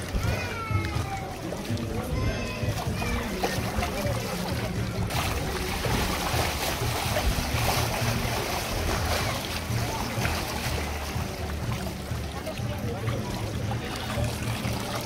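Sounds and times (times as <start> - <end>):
water sloshing and splashing: 0.0 - 15.0.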